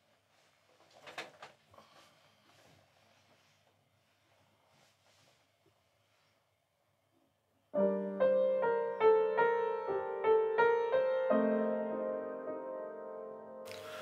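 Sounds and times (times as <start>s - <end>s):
upright piano chords: 7.7s - 14.0s.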